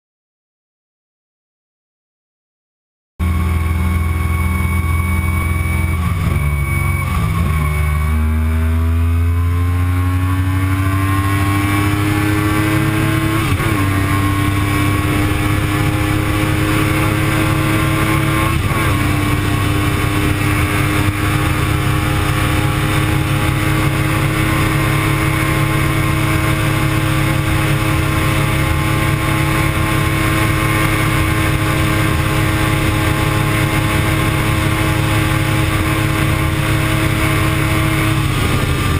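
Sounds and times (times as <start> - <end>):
motorcycle engine accelerating: 3.2 - 38.9
wind rush: 38.0 - 38.9.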